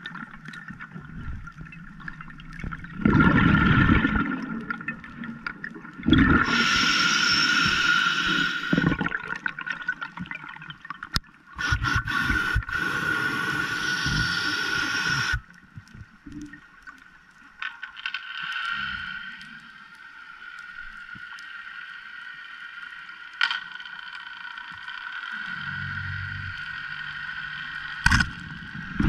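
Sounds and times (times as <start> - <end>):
gurgling snorkel breaths: 6.1 - 9.2, 11.6 - 15.5.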